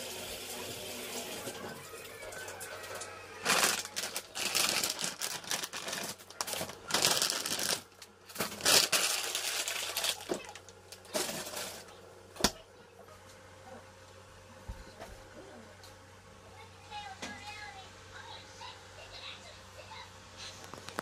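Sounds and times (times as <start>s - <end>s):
aluminium foil crinkling: 2.9s - 11.9s.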